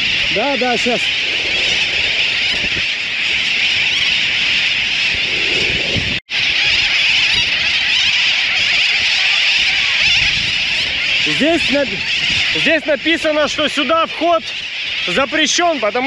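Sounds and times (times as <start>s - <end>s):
seabird colony calling: 0.0s - 16.0s.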